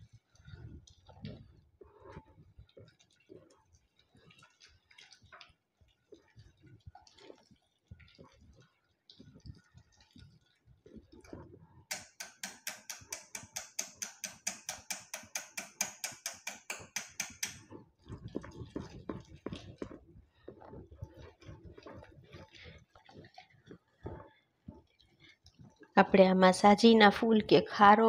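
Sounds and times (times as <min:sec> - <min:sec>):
whisk beating batter in pot: 0:04.2 - 0:25.0.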